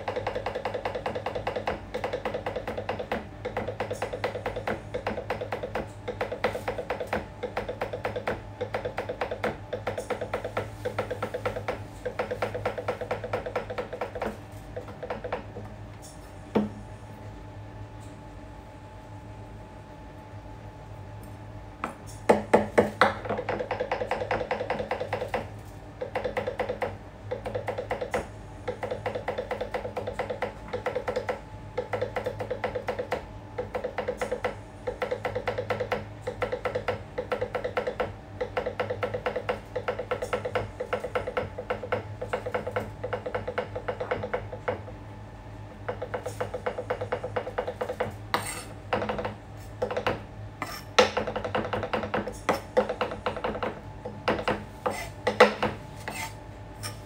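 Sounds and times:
knife chopping on plastic board: 0.0s - 15.7s, 21.8s - 44.9s, 45.9s - 57.0s.

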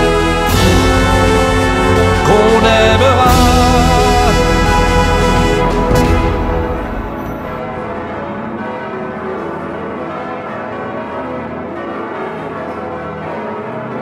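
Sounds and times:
song music: 0.0s - 9.9s
church bells pealing: 0.0s - 14.0s.

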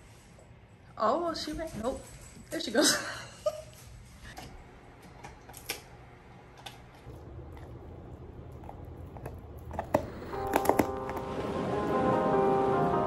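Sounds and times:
low steady hum: 4.4s - 13.0s
dog gnawing chew treat: 6.6s - 11.3s.

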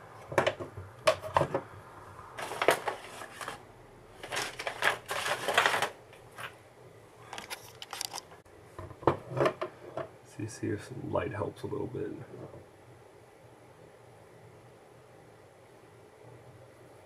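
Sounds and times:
hard objects clicking and rattling: 2.4s - 3.6s, 4.2s - 6.6s, 7.3s - 10.1s.

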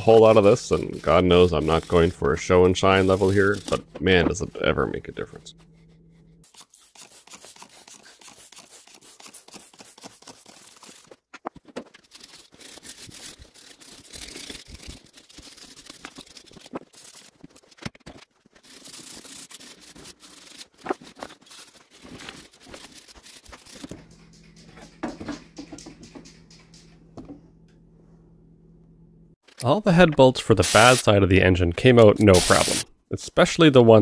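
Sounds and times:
brush scrubbing engine: 0.0s - 10.4s
spraying: 30.6s - 31.1s, 32.3s - 32.8s.

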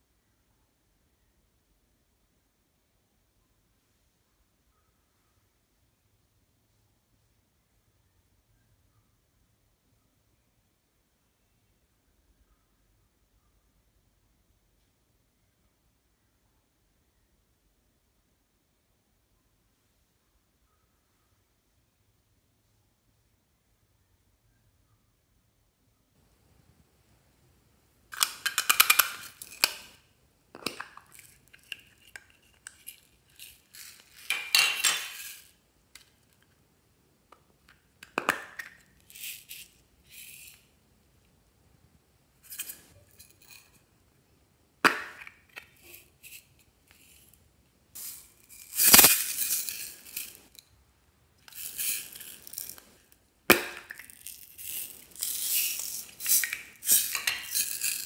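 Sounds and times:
beads rattling: 28.1s - 30.0s, 30.6s - 36.4s, 38.0s - 40.7s, 42.4s - 43.8s, 45.0s - 47.4s, 48.0s - 50.6s, 51.4s - 58.0s
plastic toy cases clicking open: 28.1s - 30.0s.

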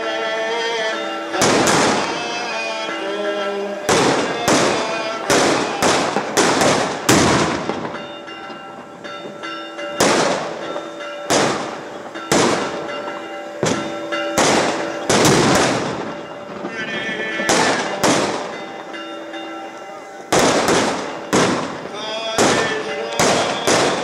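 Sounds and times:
church bells ringing: 0.0s - 24.0s
fireworks loud echoing bangs: 0.0s - 24.0s.

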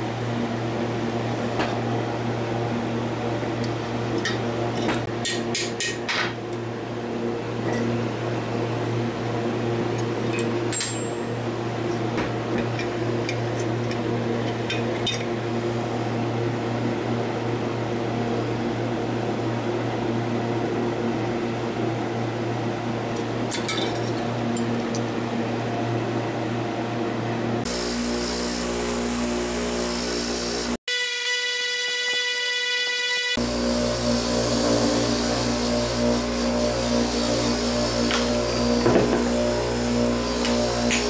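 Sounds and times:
low fan hum: 33.4s - 41.0s.

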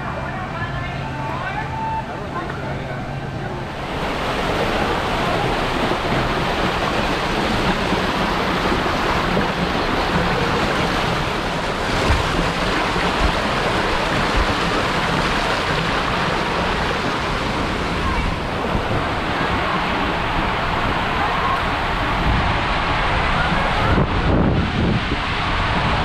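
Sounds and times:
water gushing through slide: 3.0s - 26.0s.

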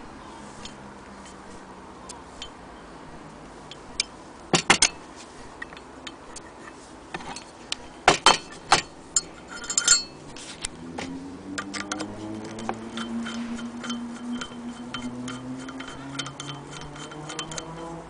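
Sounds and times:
metal crank knocking on wood: 4.5s - 5.0s, 7.2s - 10.1s, 11.6s - 18.0s.

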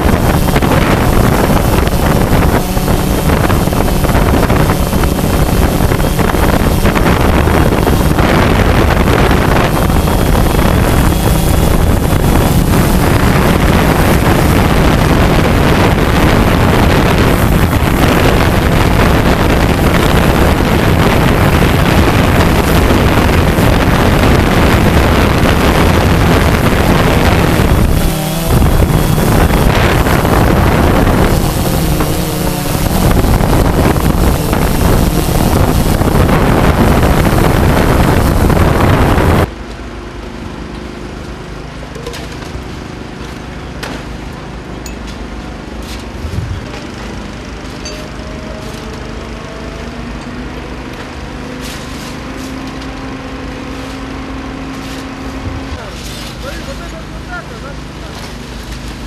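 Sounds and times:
wind buffeting microphone: 0.0s - 39.5s, 46.1s - 47.1s
drone propellers rushing: 0.0s - 39.6s, 40.4s - 59.0s
faint motor whine: 0.0s - 59.0s.

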